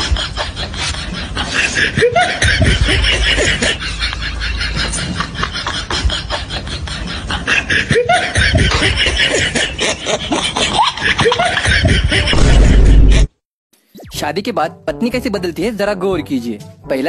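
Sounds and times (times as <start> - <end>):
snickering laughter: 0.0 - 13.3.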